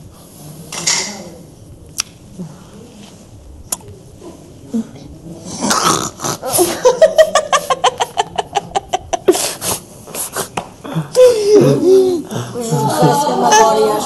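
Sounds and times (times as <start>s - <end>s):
woman laughing hard: 6.4s - 9.4s.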